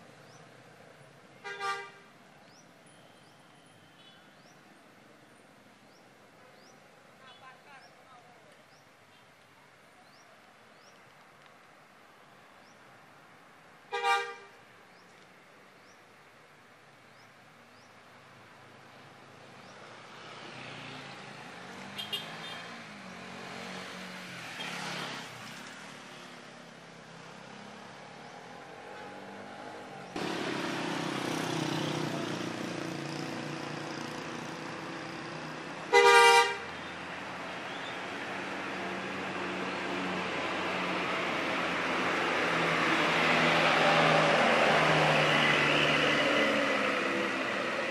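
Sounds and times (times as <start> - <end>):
vehicle horn: 1.4 - 2.1, 13.9 - 14.5, 22.0 - 22.7, 35.9 - 36.7.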